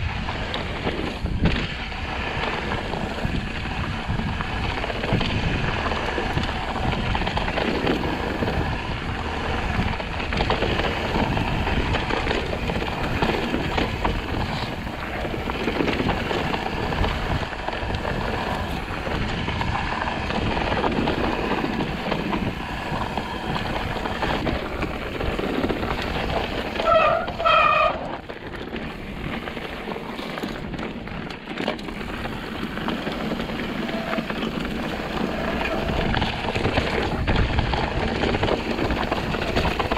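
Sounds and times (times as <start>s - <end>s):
bike tyres crunching over rocks: 0.0s - 39.9s
wind on microphone: 0.0s - 39.9s.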